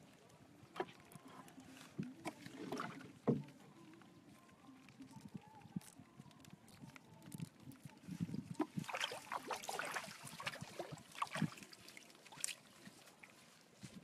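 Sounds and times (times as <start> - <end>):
water splashing: 0.0 - 4.0, 6.6 - 13.4.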